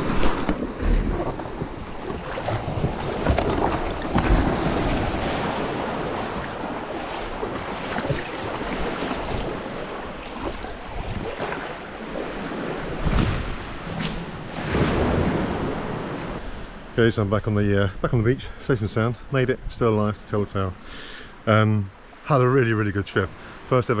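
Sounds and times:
water sloshing and splashing: 0.0 - 16.4
wind on microphone: 0.0 - 16.4.

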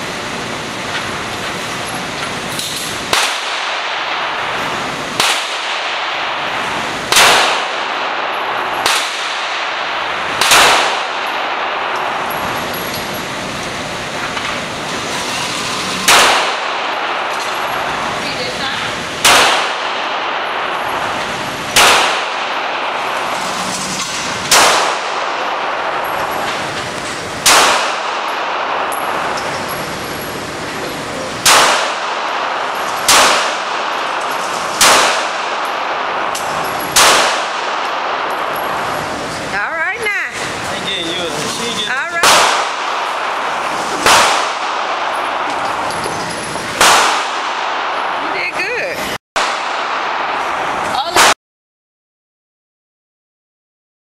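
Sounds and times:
pistol shots echoing indoors: 3.1 - 12.6, 16.0 - 18.1, 18.7 - 26.7, 27.4 - 29.8, 31.4 - 39.2, 42.2 - 45.9, 46.8 - 48.2, 49.4 - 51.3.

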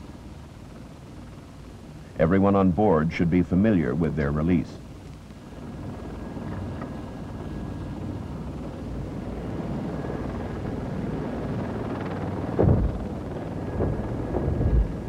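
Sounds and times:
faint high whine: 0.0 - 15.0
helicopter cabin rumble: 0.0 - 15.0
loud thump: 12.6 - 13.0.

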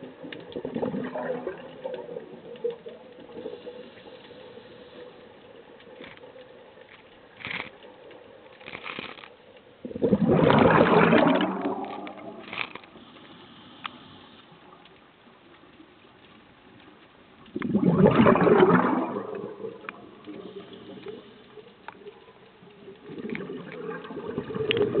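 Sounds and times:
quiet bubbling: 0.0 - 25.0
scuba regulator bubbles rushing: 0.5 - 3.6, 9.8 - 12.6, 17.5 - 21.2, 23.0 - 25.0.

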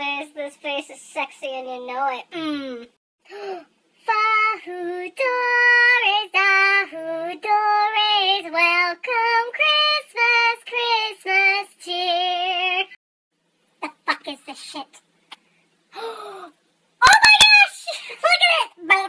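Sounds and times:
woman singing unaccompanied: 4.0 - 13.0.

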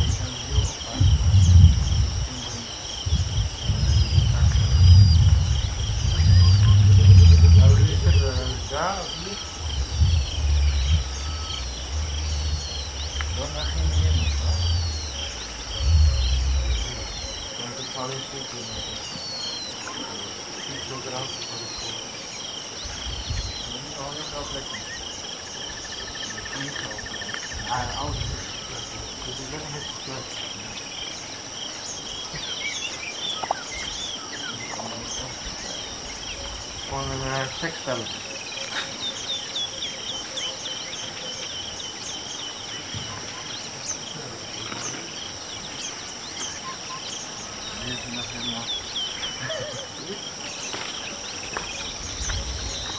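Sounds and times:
insects droning and chirping: 0.0 - 52.9
brief low rumble: 3.1 - 8.6, 9.4 - 17.5.

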